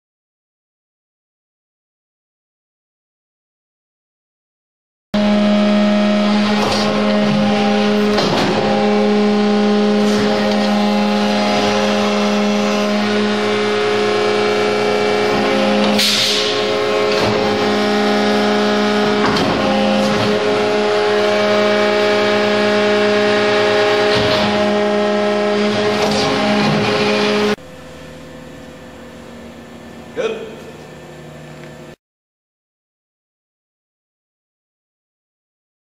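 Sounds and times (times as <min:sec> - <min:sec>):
tube bending machine humming: 0:05.2 - 0:32.0.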